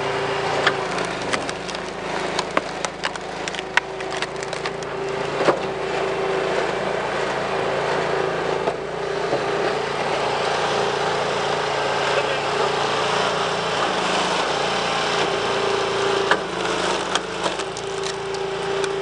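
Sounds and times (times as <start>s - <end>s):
splitter motor running: 0.0s - 19.0s
wood cracking and splintering: 0.5s - 5.7s, 16.2s - 19.0s.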